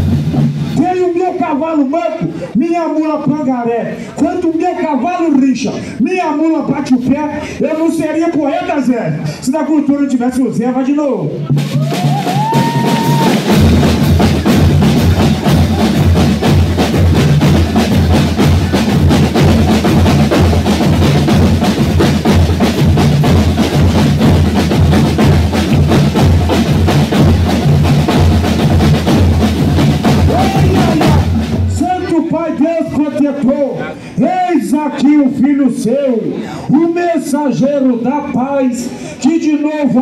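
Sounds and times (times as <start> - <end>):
snare and bass drums beating: 0.0 - 1.9, 11.5 - 33.5.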